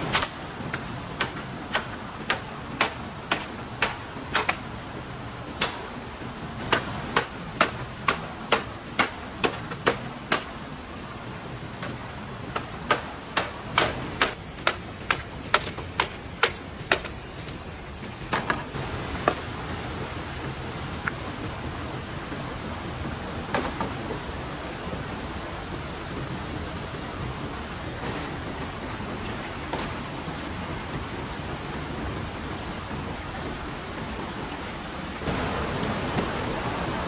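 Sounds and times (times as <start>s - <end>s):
blade chopping bamboo: 0.0s - 4.7s, 5.5s - 5.9s, 6.6s - 10.6s, 11.8s - 19.4s
steady rushing background: 0.0s - 37.0s.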